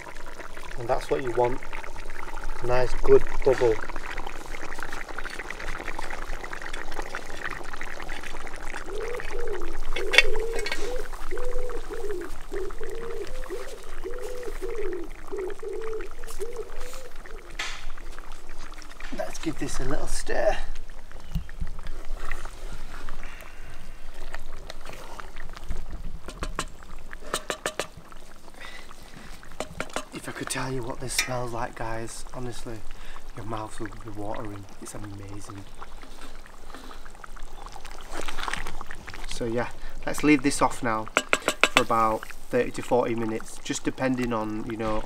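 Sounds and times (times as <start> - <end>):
curry bubbling and popping: 0.0 - 45.0
sharp knocks: 27.3 - 28.0.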